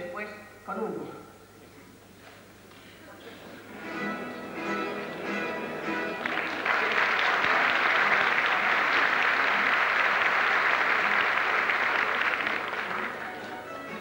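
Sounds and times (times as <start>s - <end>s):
plucked string ensemble: 3.6s - 9.7s, 12.4s - 14.0s
audience applause: 4.8s - 14.0s.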